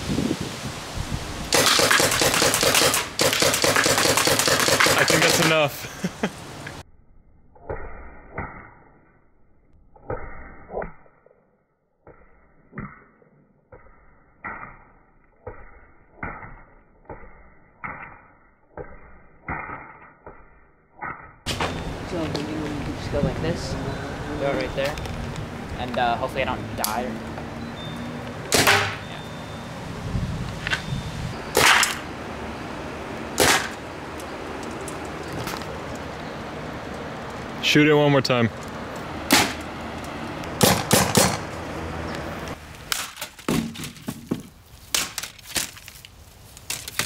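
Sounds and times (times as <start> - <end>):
paintball gun shots: 1.5 - 5.6, 28.5 - 29.1, 31.5 - 32.0, 33.4 - 33.8, 39.3 - 39.6, 40.6 - 41.4.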